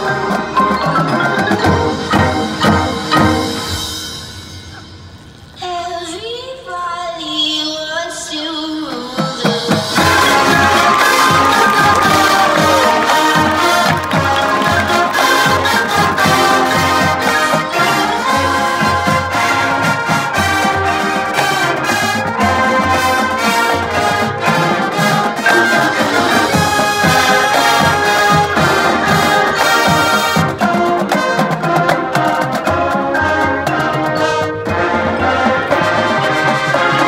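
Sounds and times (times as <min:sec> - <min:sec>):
mallet percussion: 0:00.0 - 0:05.4, 0:09.2 - 0:37.0
drums: 0:00.0 - 0:37.0
brass playing chords: 0:10.0 - 0:37.0.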